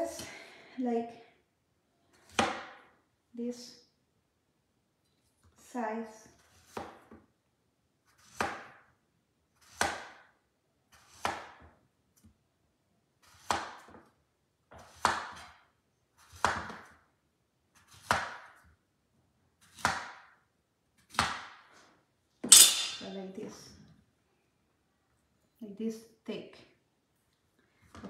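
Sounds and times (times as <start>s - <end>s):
knife chopping on cutting board: 2.3s - 2.8s, 6.5s - 7.2s, 8.2s - 8.8s, 9.6s - 10.3s, 11.0s - 11.7s, 13.3s - 14.0s, 14.8s - 15.5s, 16.2s - 16.9s, 17.8s - 18.6s, 19.6s - 20.4s.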